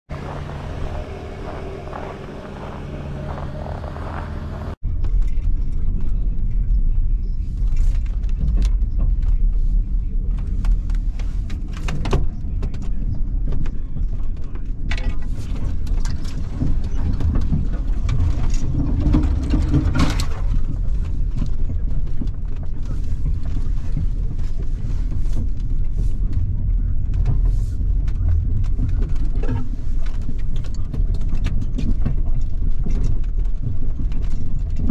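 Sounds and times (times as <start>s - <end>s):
truck engine running: 0.1s - 5.4s
low engine and drivetrain rumble: 0.1s - 34.9s
knocks and rattles: 7.7s - 34.9s.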